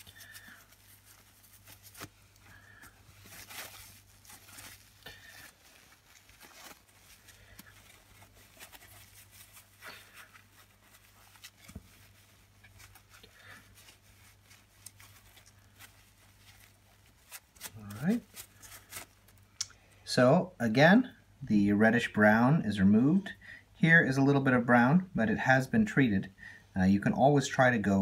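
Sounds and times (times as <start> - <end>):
tissue paper rustling and crinkling: 0.0 - 19.6.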